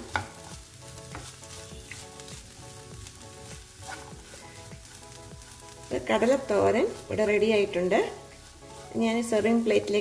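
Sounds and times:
spatula tapping and scraping pan: 0:00.0 - 0:02.1
food sizzling in a frying pan: 0:00.0 - 0:10.0.

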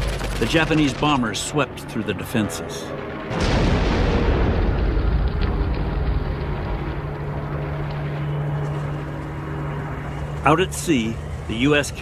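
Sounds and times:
steady low hum: 0:00.0 - 0:12.0
bomb explosion: 0:03.3 - 0:08.4.

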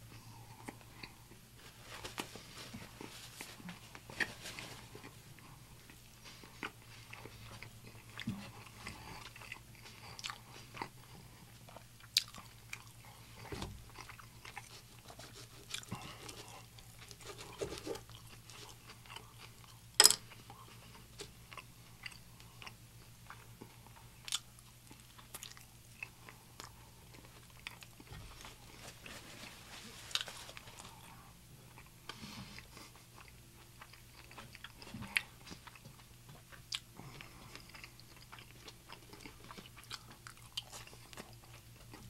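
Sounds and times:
chewing and mouth sounds: 0:02.8 - 0:28.8, 0:30.1 - 0:42.0.

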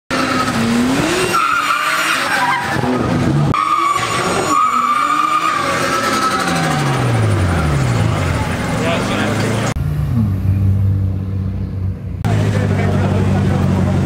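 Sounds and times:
car tyres squealing: 0:00.1 - 0:10.6
engine revving: 0:00.1 - 0:14.0.

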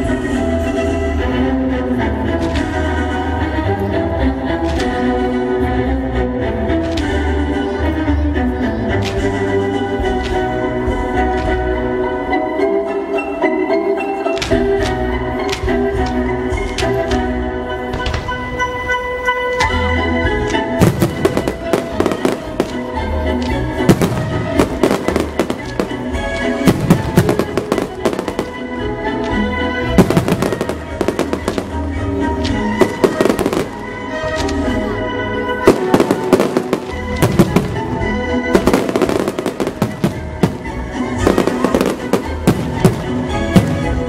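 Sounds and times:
music playing: 0:00.0 - 0:44.0
fireworks bursting: 0:20.8 - 0:34.8, 0:35.6 - 0:44.0.

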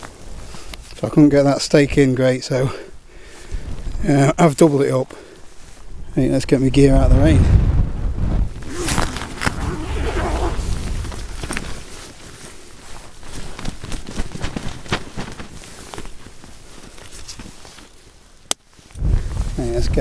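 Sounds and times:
tent flysheet rustling and flapping: 0:03.5 - 0:04.2, 0:07.1 - 0:20.0
wind buffeting microphone: 0:06.7 - 0:11.8, 0:19.0 - 0:20.0.

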